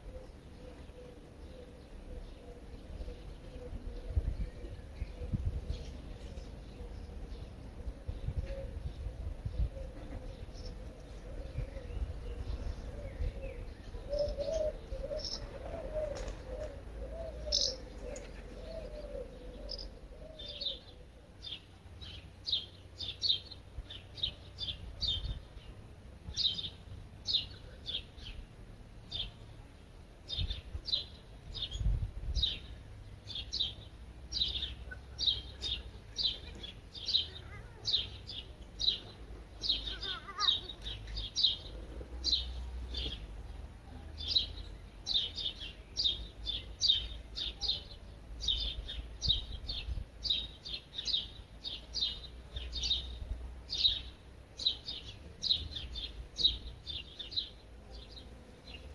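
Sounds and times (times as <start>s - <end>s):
songbird chirping: 0.0s - 58.9s.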